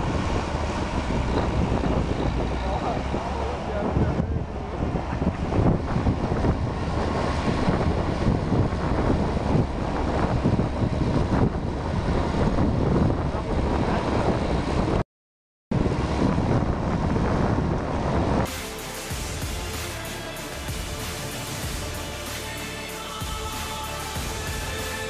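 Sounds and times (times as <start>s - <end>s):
diesel engine running: 0.0s - 15.0s, 15.7s - 25.0s
wind buffeting microphone: 0.0s - 15.0s, 15.7s - 18.5s.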